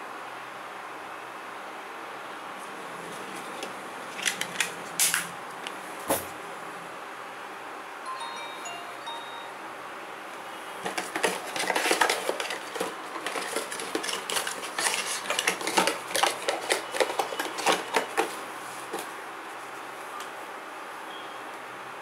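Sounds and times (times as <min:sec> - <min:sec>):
cardboard box rustling and scraping: 0:10.8 - 0:19.1.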